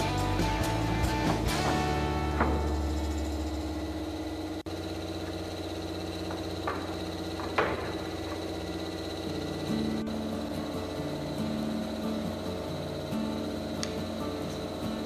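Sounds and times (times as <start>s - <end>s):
steady background hum: 0.0s - 15.0s
wooden board knocking on concrete: 6.2s - 8.4s.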